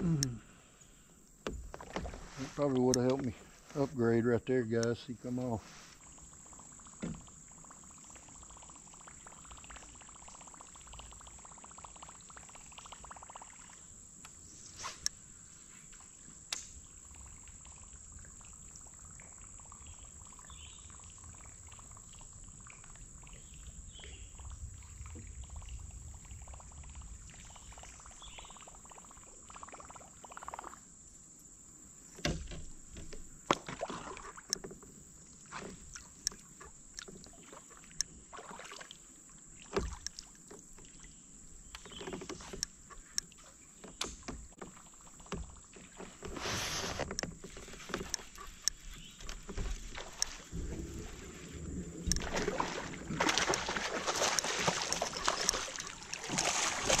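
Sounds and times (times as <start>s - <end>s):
insects chirring: 0.0s - 57.0s.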